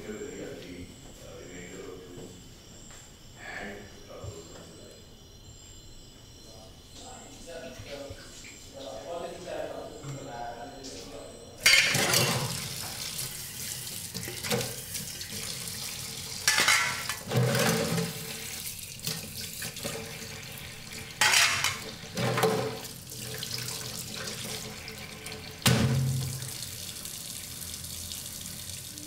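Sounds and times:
things handled in a sink: 11.6s - 26.6s
tap running into a sink: 11.9s - 29.0s.

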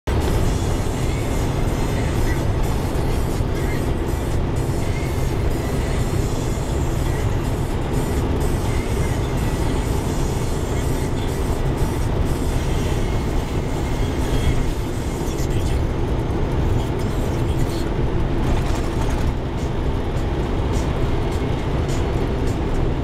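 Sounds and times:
diesel truck engine droning: 0.0s - 23.0s
tyre and road noise: 0.1s - 23.0s
cab rattles clicking: 17.6s - 19.4s.

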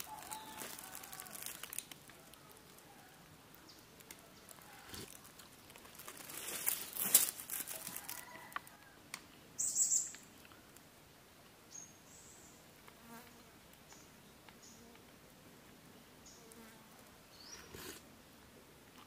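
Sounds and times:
thin high bird call: 0.0s - 1.8s
dry leaves rustling: 0.0s - 8.7s.

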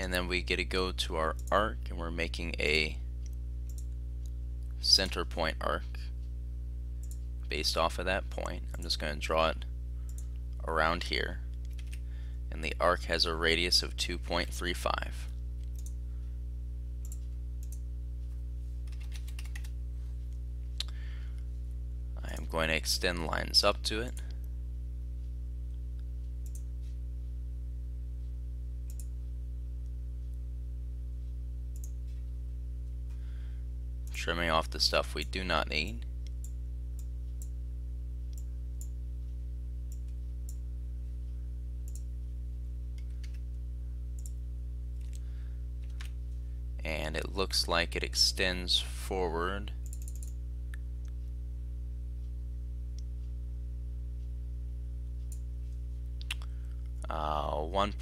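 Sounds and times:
low electrical hum: 0.0s - 58.0s
faint clicks: 3.2s - 4.8s, 7.0s - 7.3s, 10.1s - 10.6s, 15.6s - 16.0s, 17.0s - 17.8s, 26.0s - 26.7s, 28.9s - 29.2s, 31.7s - 32.3s, 41.8s - 42.1s, 44.2s - 44.4s, 49.8s - 51.4s
computer mouse clicks: 3.7s - 3.9s, 11.6s - 12.0s, 15.6s - 16.0s, 17.0s - 17.8s, 18.8s - 19.7s, 28.9s - 29.1s, 41.8s - 42.1s, 44.2s - 44.4s, 49.8s - 50.4s.

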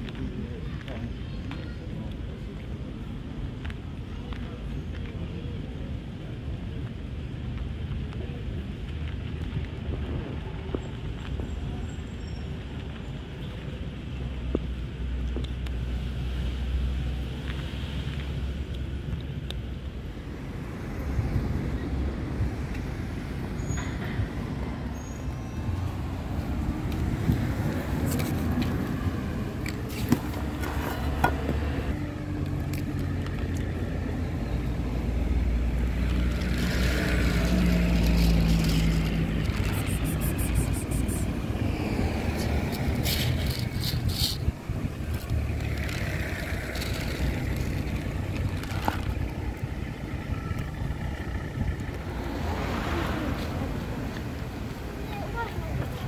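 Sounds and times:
road traffic rumbling: 0.0s - 56.0s
vehicle passing: 20.1s - 56.0s.

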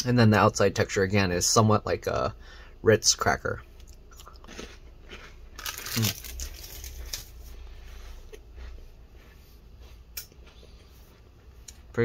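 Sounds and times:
plastic wrapper crinkling: 5.6s - 7.4s.

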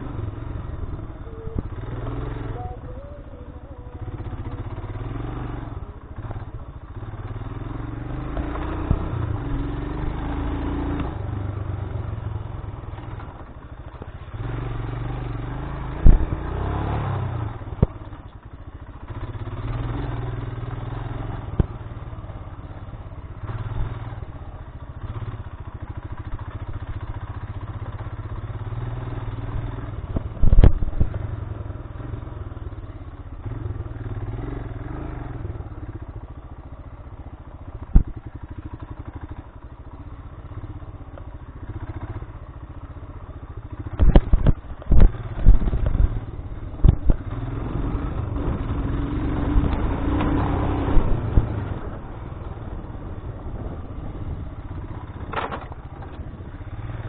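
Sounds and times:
motorcycle engine at low speed: 0.0s - 57.0s
motorcycle knocking and clattering: 17.7s - 20.6s, 24.8s - 31.5s, 35.9s - 47.5s, 54.6s - 56.7s.

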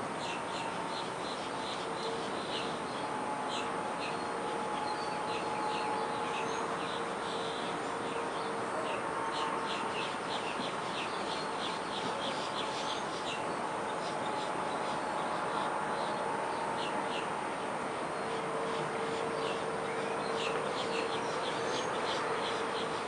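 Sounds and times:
outdoor background hum: 0.0s - 23.0s.

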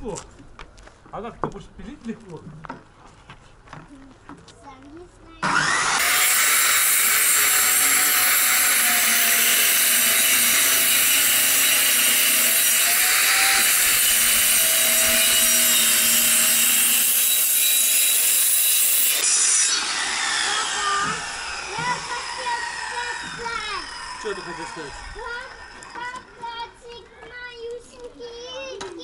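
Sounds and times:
circular saw cutting plywood: 5.4s - 26.4s.

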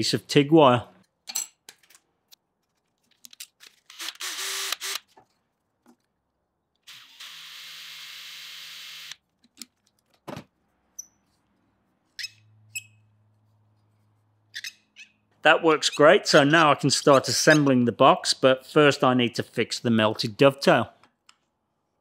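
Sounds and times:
cordless drill running: 3.9s - 5.1s, 6.9s - 9.2s.

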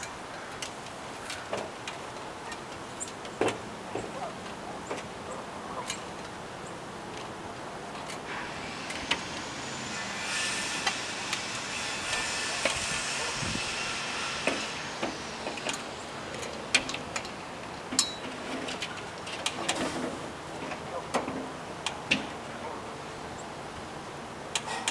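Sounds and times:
clicks and knocks of handled metal: 0.0s - 6.4s, 14.4s - 22.4s, 24.5s - 24.9s
hissing rush: 7.4s - 20.6s.

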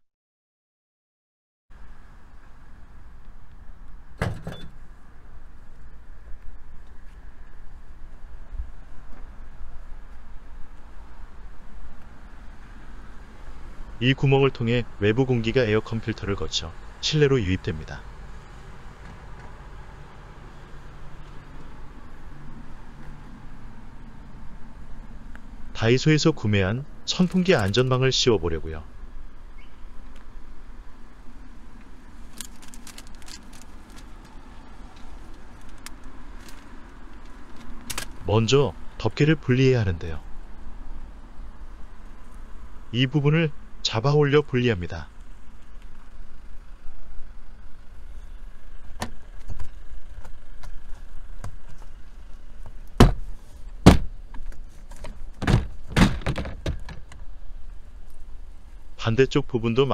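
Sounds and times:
plastic packaging crinkling: 32.2s - 34.3s.

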